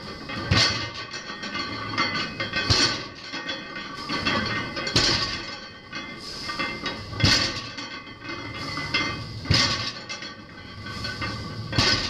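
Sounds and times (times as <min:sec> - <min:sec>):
barbell clanking down on blocks: 0:04.1 - 0:05.6, 0:07.2 - 0:10.3, 0:11.0 - 0:12.0.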